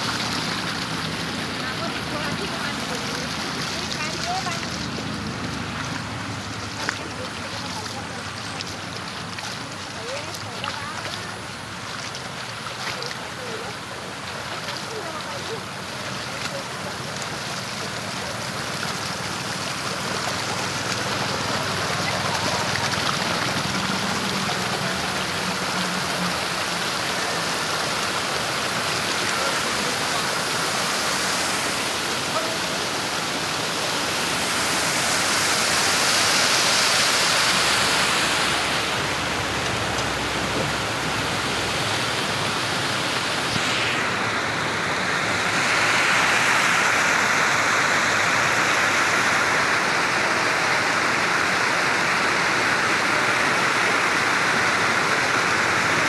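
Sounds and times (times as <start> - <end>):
water rushing over rocks: 0.0 - 56.0.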